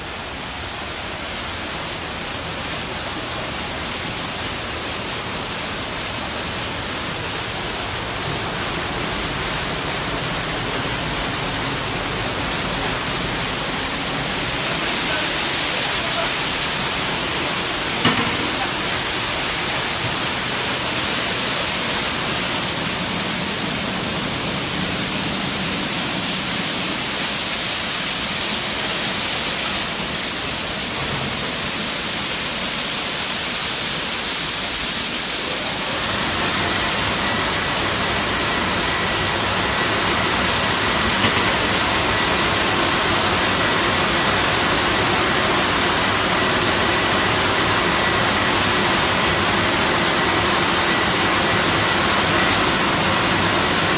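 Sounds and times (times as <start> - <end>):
water jets spraying and hissing: 0.0 - 53.9
steady high whine: 34.4 - 53.9.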